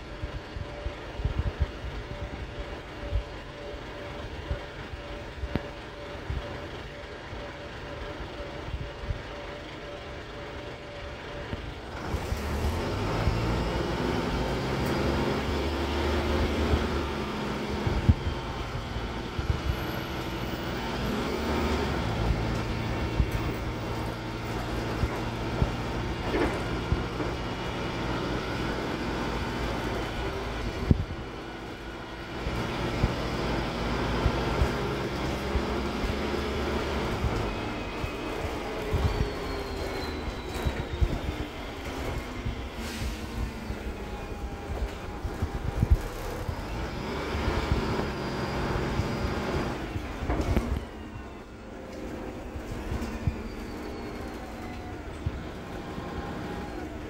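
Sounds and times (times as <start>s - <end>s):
bus diesel engine: 0.0s - 57.0s.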